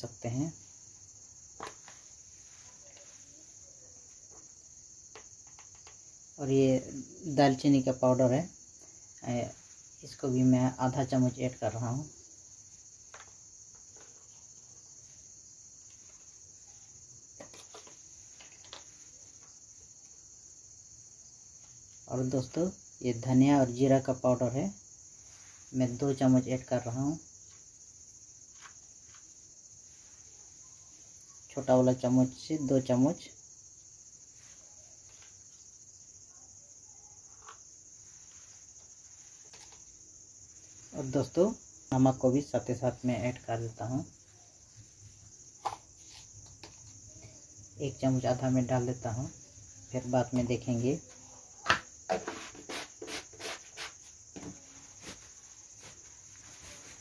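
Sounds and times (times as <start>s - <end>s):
crickets chirring: 0.0s - 57.0s
faint clicks and taps: 5.1s - 6.1s.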